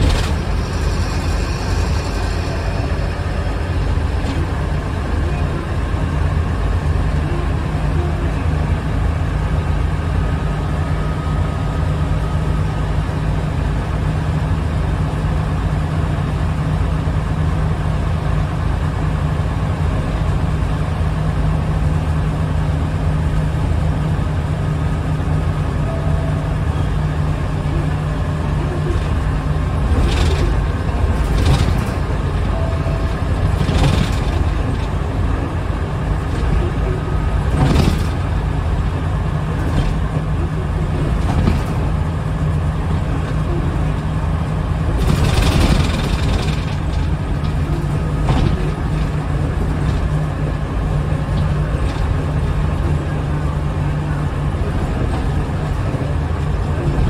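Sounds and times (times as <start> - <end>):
short clatter: 0.0 - 3.1, 28.9 - 35.0, 37.4 - 40.3, 44.9 - 50.2
bus diesel engine droning: 0.0 - 57.0
road and tyre rumble: 0.0 - 57.0.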